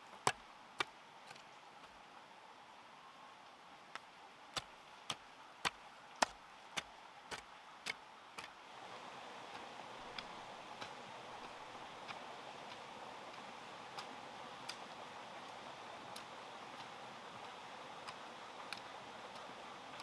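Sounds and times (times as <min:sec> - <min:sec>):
steady hiss: 0:00.0 - 0:20.0
faint ticks: 0:09.5 - 0:20.0.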